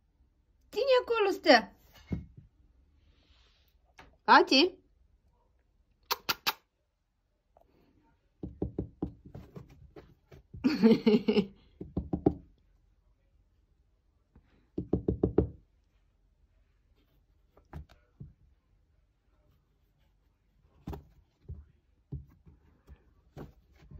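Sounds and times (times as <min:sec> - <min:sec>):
hand tapping on fabric stairs: 0:08.4 - 0:10.7, 0:11.8 - 0:12.5, 0:14.8 - 0:15.6.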